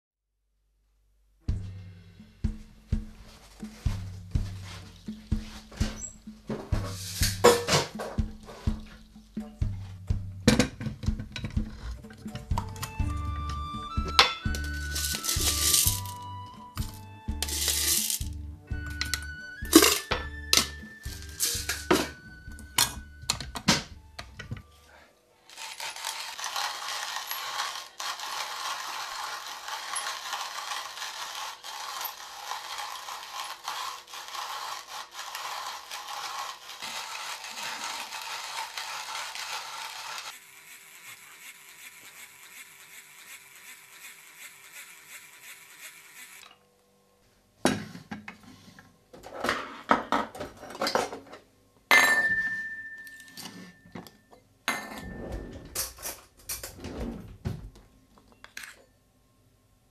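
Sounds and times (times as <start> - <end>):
hand coffee grinder grinding: 3.4 - 9.8, 11.0 - 23.6, 24.2 - 46.6
utensils and dishes clinking: 4.7 - 9.6, 14.0 - 24.8, 49.3 - 57.1.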